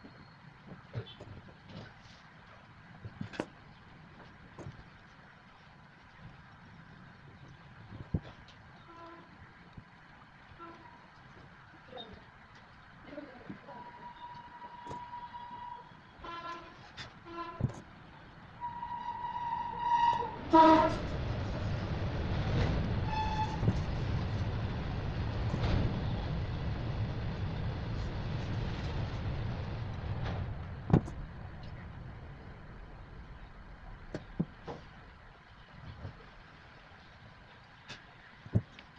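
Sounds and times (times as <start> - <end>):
horn toots: 13.9 - 17.8, 18.6 - 21.0
low rumble of large vehicle passing: 17.2 - 37.5.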